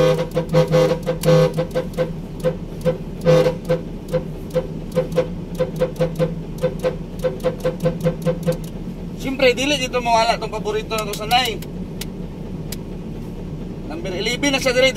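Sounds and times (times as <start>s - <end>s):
truck horn blasts and toots: 0.0s - 8.7s.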